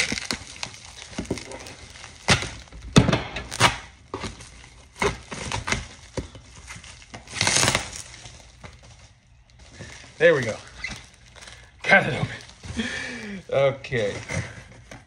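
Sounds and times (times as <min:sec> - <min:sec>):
knife cutting tape and cardboard: 0:03.3 - 0:04.0, 0:07.1 - 0:08.4.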